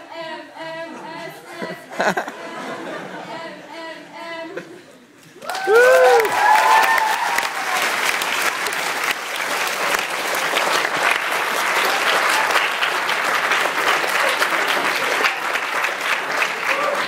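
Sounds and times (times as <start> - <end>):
crowd applauding: 5.4 - 17.0.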